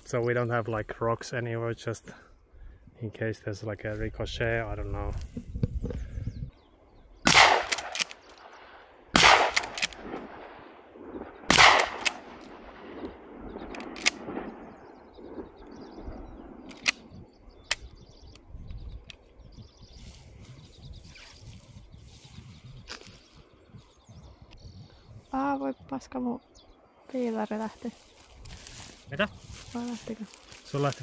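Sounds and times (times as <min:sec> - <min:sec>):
shotgun blasts with echo: 0:07.2 - 0:15.6
faint sharp cracks: 0:07.3 - 0:10.5, 0:11.5 - 0:14.6.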